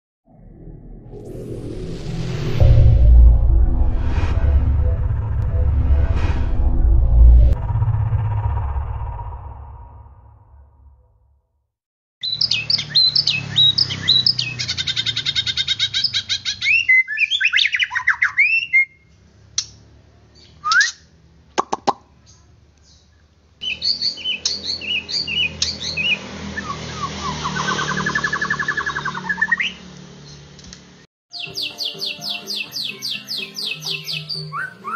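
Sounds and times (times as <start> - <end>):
songbird whistles and trills: 12.2 - 15.1, 16.0 - 19.1, 20.4 - 21.1, 31.3 - 34.9.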